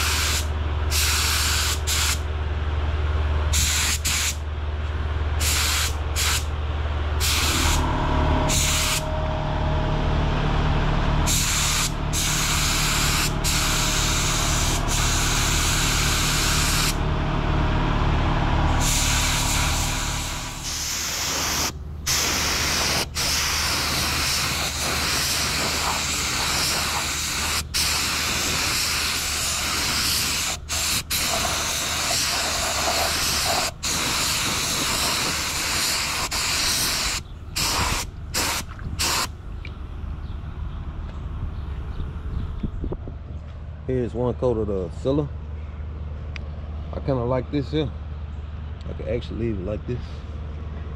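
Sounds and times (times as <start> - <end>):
spray gun hissing: 0.0 - 2.2, 3.6 - 4.4, 5.4 - 6.5, 7.2 - 7.8, 8.5 - 9.0, 11.3 - 17.0, 18.8 - 39.3
low machine hum: 0.0 - 50.9.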